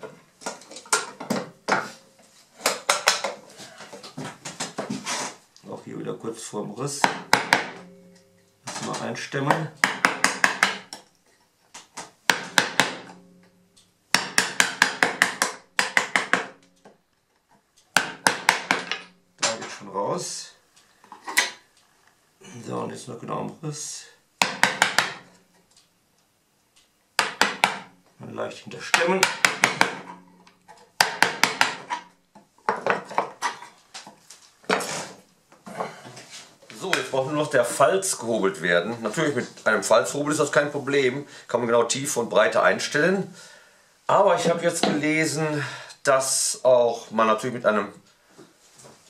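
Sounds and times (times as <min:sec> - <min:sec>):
mallet knocking on chisel: 0:07.0 - 0:08.1, 0:09.5 - 0:11.0, 0:12.3 - 0:13.3, 0:14.1 - 0:16.7, 0:18.0 - 0:19.1, 0:24.4 - 0:25.3, 0:27.2 - 0:27.9, 0:28.9 - 0:30.2, 0:31.0 - 0:32.1.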